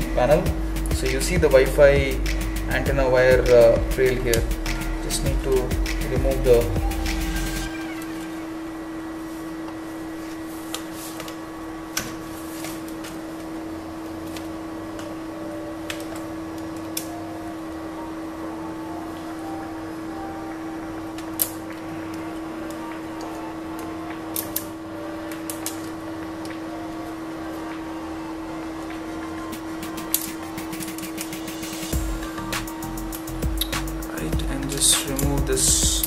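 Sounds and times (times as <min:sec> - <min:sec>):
steady hum: 0:00.0 - 0:36.0.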